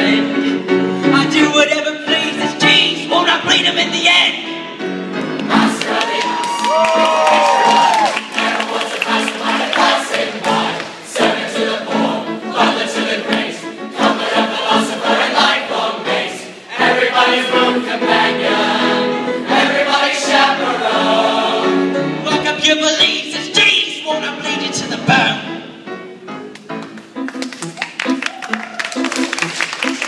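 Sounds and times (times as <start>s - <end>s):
choir singing in harmony: 0.0s - 6.7s, 7.5s - 23.7s.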